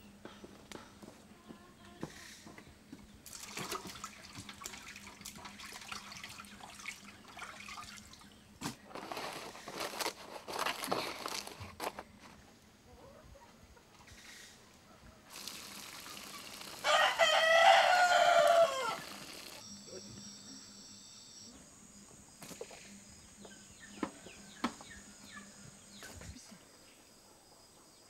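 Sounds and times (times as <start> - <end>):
water pouring from metal pot: 3.3 - 8.1, 15.3 - 17.0
rooster crowing: 16.8 - 19.6.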